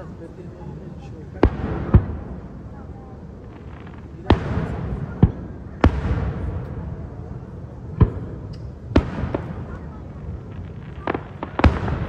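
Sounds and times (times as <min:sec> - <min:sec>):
firework shells booming: 0:01.4 - 0:02.6, 0:07.9 - 0:12.0.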